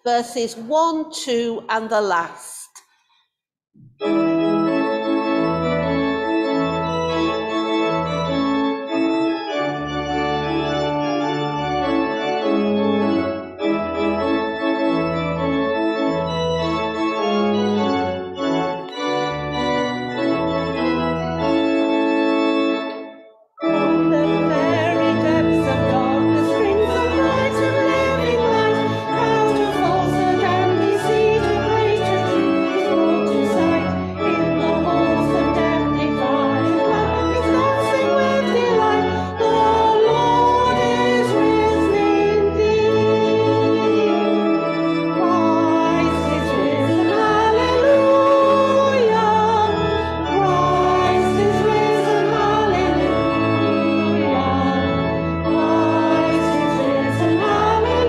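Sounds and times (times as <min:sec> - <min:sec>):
church organ playing hymn: 0:03.8 - 0:58.0
congregation singing: 0:23.6 - 0:58.0.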